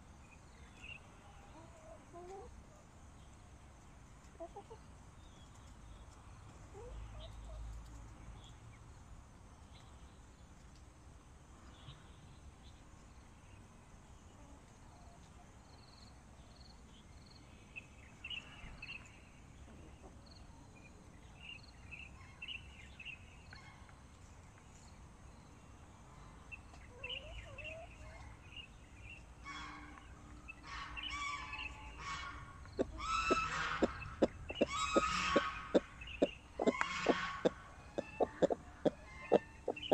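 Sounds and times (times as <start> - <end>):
hens clucking: 30.6 - 39.9.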